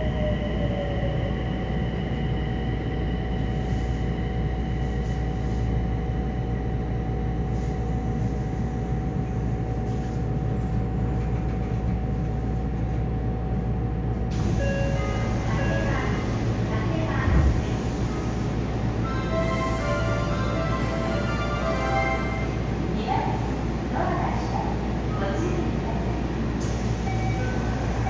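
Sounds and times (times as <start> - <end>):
train inverter and motor whine: 0.0 - 28.0
train wheels rumbling on rail: 3.0 - 21.9.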